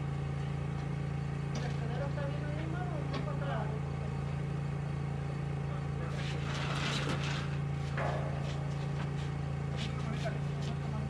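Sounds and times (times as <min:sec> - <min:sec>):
machine hum: 0:00.0 - 0:11.0
rustling scraping noise: 0:06.1 - 0:10.9.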